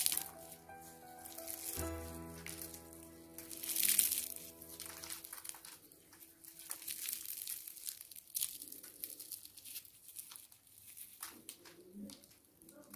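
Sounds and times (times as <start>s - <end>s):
flaky pastry crackling as torn: 3.5s - 12.9s.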